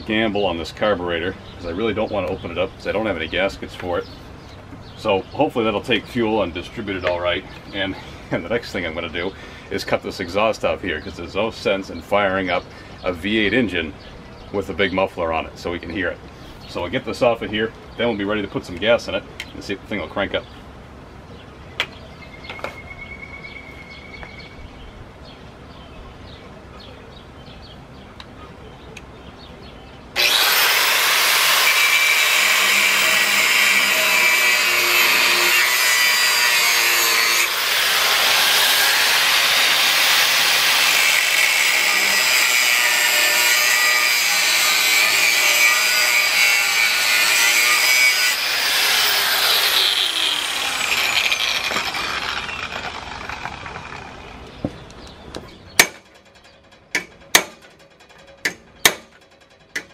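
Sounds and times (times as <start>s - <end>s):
angle grinder cutting pipe: 30.2s - 54.3s.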